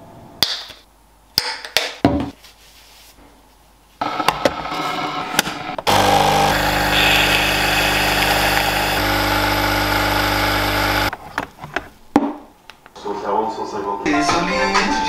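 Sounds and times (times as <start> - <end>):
coffee machine pump humming: 5.8 - 11.1
coffee streaming into mug: 6.0 - 9.0.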